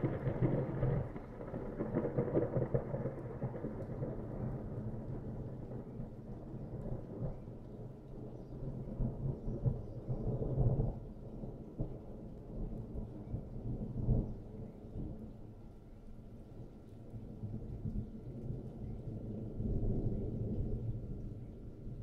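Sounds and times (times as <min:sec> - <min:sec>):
thunder rumbling: 0:00.0 - 0:15.2.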